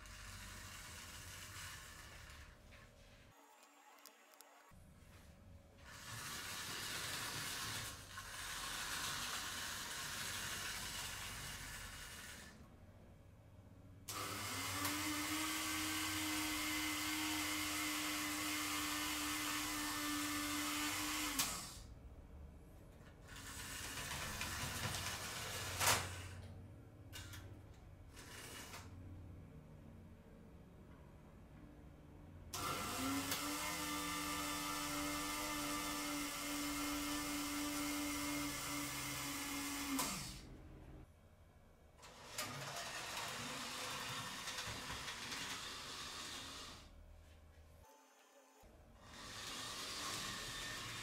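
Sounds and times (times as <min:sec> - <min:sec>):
model locomotive motor running: 0:00.0 - 0:02.6, 0:05.9 - 0:12.6, 0:23.3 - 0:26.3, 0:42.0 - 0:46.9, 0:49.0 - 0:51.0.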